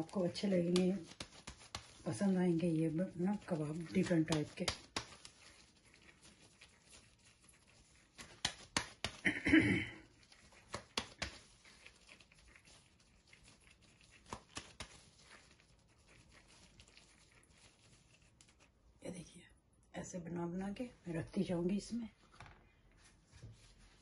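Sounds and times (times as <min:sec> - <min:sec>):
plastic glove rustling: 0:00.0 - 0:19.0, 0:21.4 - 0:24.0
hands patting patty: 0:00.3 - 0:02.0, 0:03.8 - 0:05.4, 0:08.2 - 0:09.5, 0:10.5 - 0:11.5.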